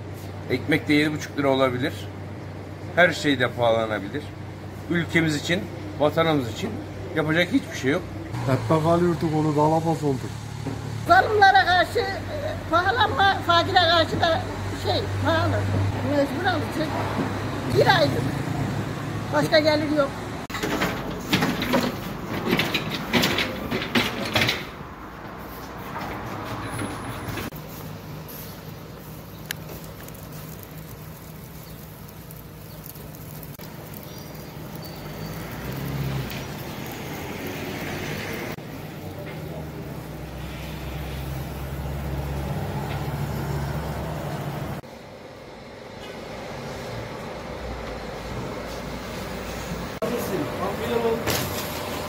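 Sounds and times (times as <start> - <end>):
vehicle engine humming: 0.0 - 52.0
metal rack trolley rattling: 20.5 - 24.8.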